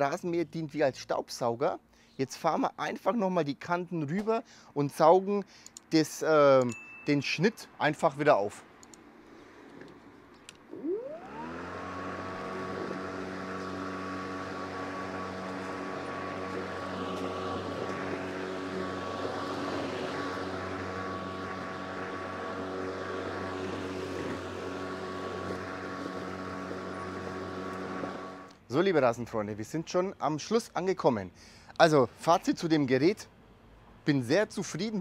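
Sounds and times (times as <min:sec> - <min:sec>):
lawn mower running: 0:10.7 - 0:28.6.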